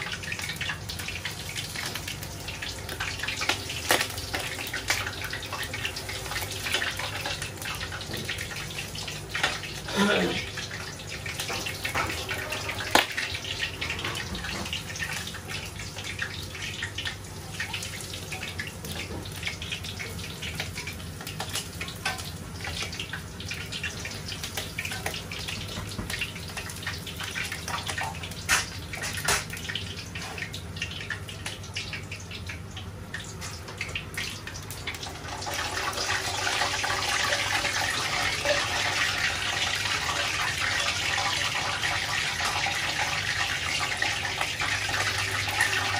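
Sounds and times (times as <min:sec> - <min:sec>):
meat deep-frying in hot oil: 0:00.0 - 0:45.9.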